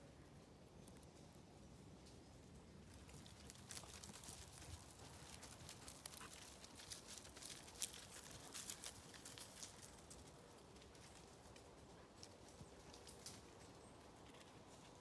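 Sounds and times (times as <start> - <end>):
twigs and leaves crunching underfoot: 2.8 - 11.8.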